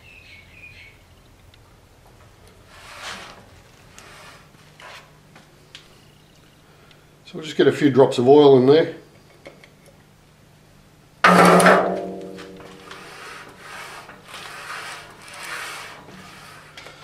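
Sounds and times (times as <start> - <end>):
lathe saddle sliding swish: 2.7 - 5.1, 12.6 - 17.0
metallic clank: 11.3 - 13.0.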